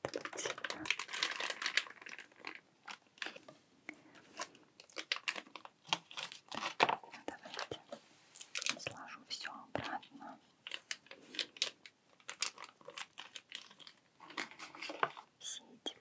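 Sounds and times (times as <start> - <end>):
plastic wrap crinkling: 0.0 - 3.5, 4.2 - 9.0, 10.6 - 15.3.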